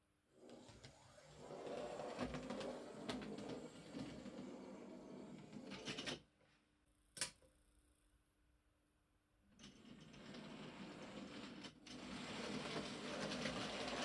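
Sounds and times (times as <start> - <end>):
sharp click: 7.2 - 7.5.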